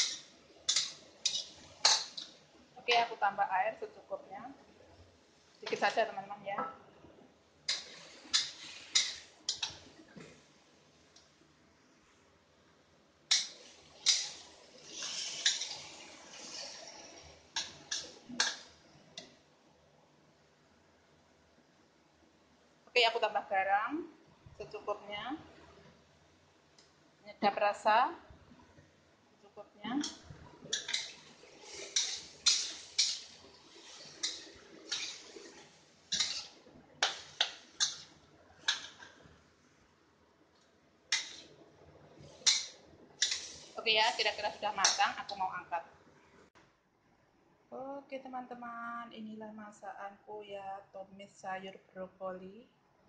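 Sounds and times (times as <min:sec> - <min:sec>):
metal spatula clinking on wok: 0:00.0 - 0:02.2
spatula scraping wok: 0:00.0 - 0:02.4, 0:07.7 - 0:10.4, 0:13.3 - 0:18.7, 0:30.0 - 0:39.4, 0:41.1 - 0:41.6, 0:42.2 - 0:45.6.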